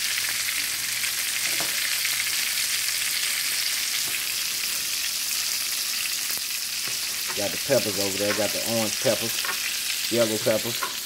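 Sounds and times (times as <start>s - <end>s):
meat sizzling in oil: 0.0s - 11.0s.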